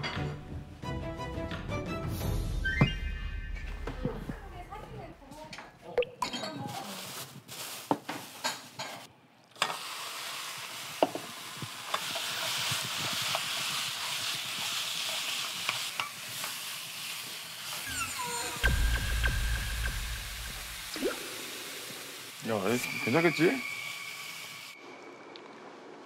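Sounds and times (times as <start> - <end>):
pork sizzling in a wok: 9.6 - 24.8.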